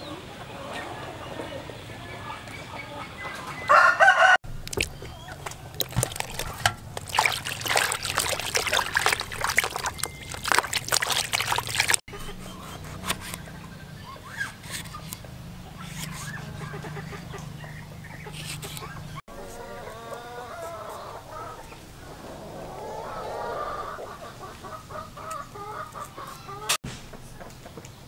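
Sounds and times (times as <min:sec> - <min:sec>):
rooster crowing: 0:03.6 - 0:04.4
water splashing in a basin: 0:04.4 - 0:12.1.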